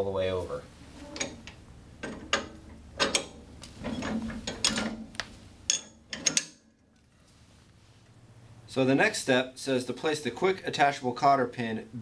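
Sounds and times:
metal hitch clicking and clanking: 1.1s - 5.1s, 5.7s - 6.6s.

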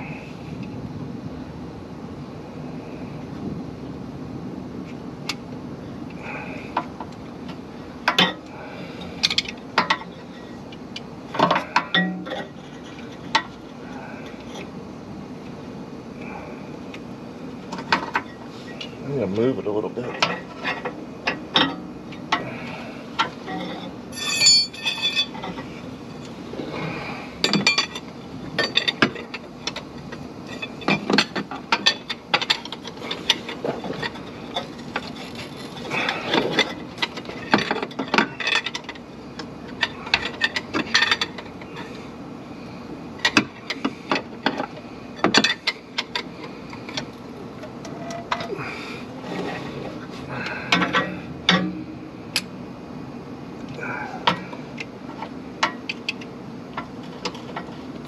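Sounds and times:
ringing metallic rattle: 23.5s - 25.4s
hex key clinking against metal: 24.1s - 25.3s.

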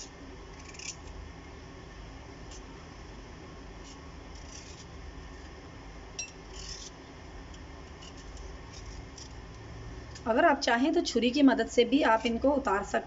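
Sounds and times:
peeler scraping melon rind: 0.0s - 1.2s, 3.8s - 5.0s, 6.5s - 7.0s, 7.9s - 9.4s.

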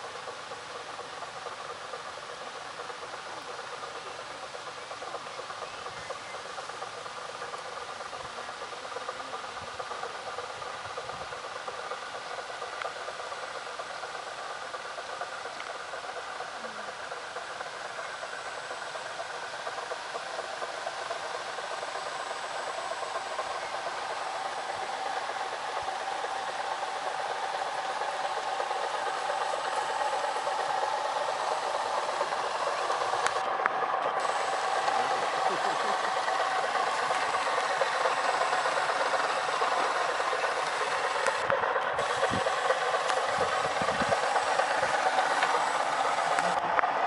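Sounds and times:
electric motor whining: 17.9s - 47.0s.

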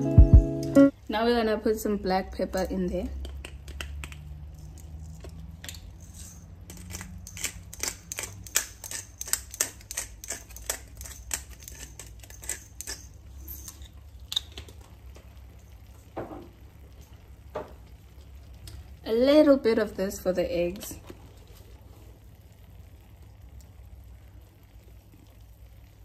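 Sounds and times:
pepper grinder grinding clicks: 6.7s - 13.1s.

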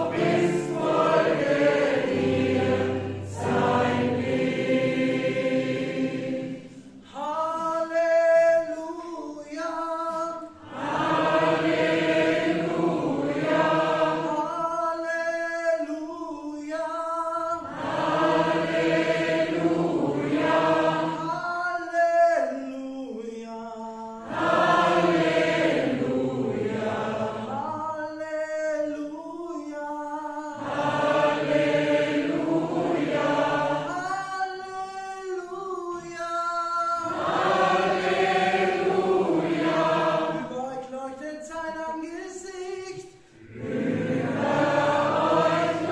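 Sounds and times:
gospel choir singing: 0.0s - 8.8s, 9.8s - 16.0s, 17.2s - 28.2s, 29.6s - 41.5s, 42.3s - 45.9s.

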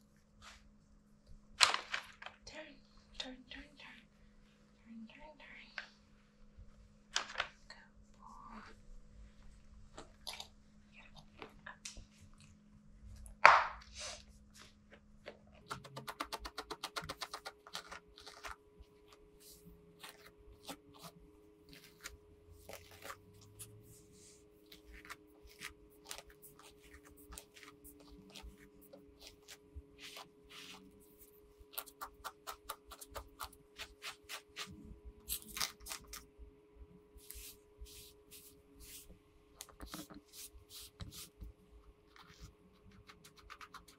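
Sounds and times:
brush scratching through dog fur: 19.4s - 34.7s, 37.2s - 39.1s.

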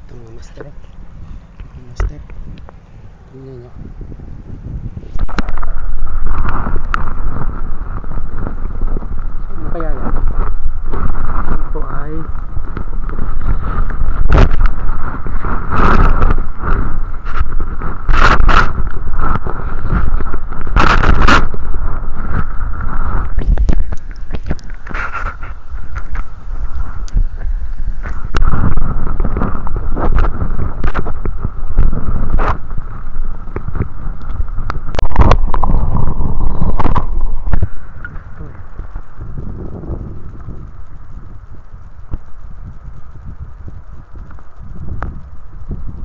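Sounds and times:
steady hum: 0.0s - 46.0s
underwater rumble of moving water: 0.0s - 46.0s.

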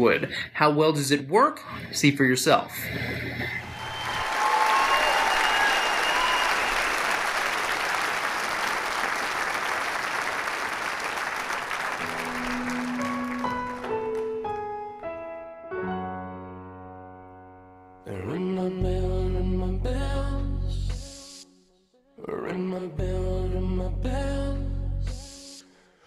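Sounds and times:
audience applauding: 3.6s - 14.8s
slow piano piece: 12.0s - 18.1s.

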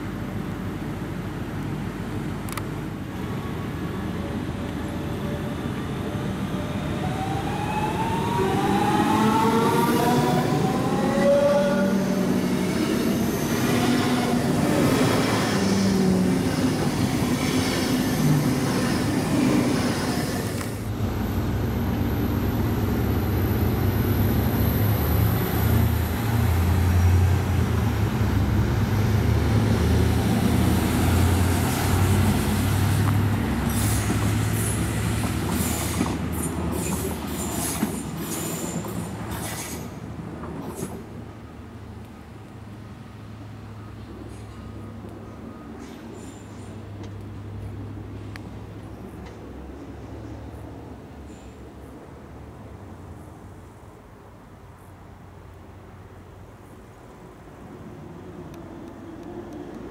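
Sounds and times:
diesel railcar engine drone: 0.0s - 59.9s
train wheel and running noise: 0.0s - 59.9s
electric train whine: 3.1s - 39.9s.

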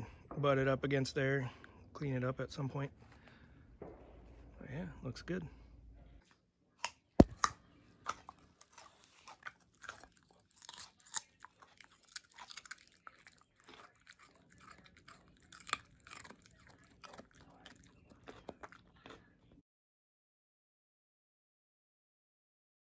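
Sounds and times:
dog chewing: 7.2s - 19.5s.

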